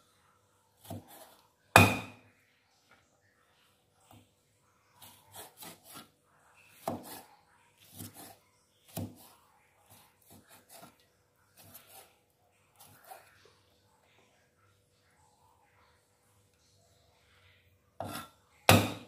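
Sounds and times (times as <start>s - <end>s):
knife cutting on wooden board: 0.8s - 2.2s, 5.0s - 6.1s, 6.8s - 11.0s, 11.6s - 12.2s, 18.0s - 19.0s.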